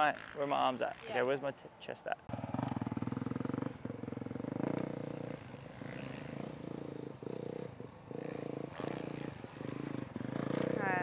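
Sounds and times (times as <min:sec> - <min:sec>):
motocross bike engine revving: 0:02.3 - 0:11.0.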